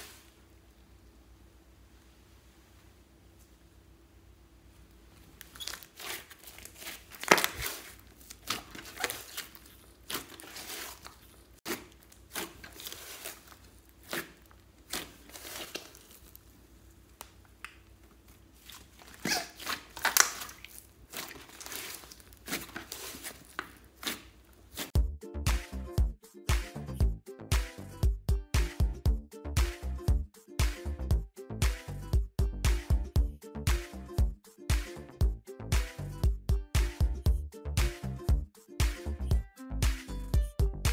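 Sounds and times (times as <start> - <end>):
slime crackling and popping: 5.4 - 17.8, 18.6 - 25.0.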